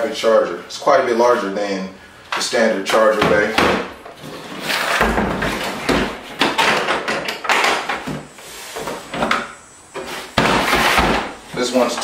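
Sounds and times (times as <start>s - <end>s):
plastic tool case knocks and clatter: 5.0s - 8.0s.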